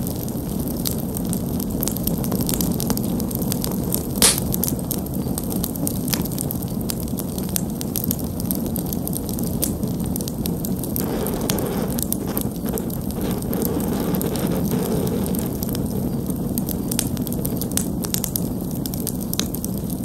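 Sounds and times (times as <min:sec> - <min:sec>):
campfire flames rushing: 0:00.0 - 0:20.0
kindling crackling: 0:00.0 - 0:20.0
loud fire pop: 0:04.2 - 0:04.7, 0:11.0 - 0:18.2.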